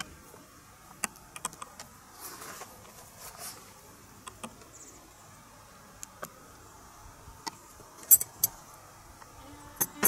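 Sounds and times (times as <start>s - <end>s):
metal parts clicking: 8.0s - 8.6s.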